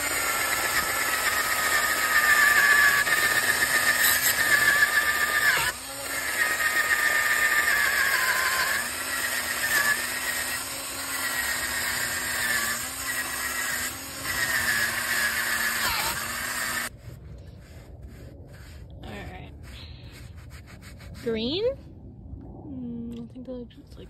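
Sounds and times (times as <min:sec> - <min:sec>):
drill motor whine: 0:00.0 - 0:16.9.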